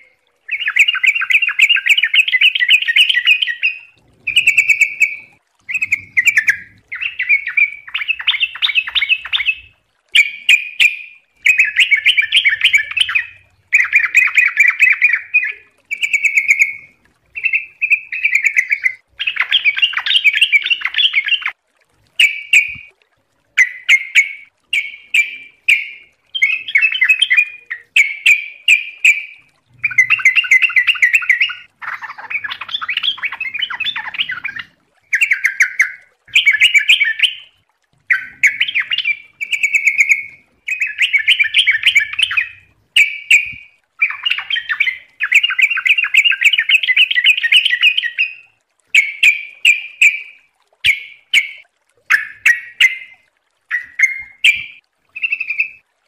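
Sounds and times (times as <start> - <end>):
bulbul singing: 0.0 - 22.9, 23.6 - 55.8.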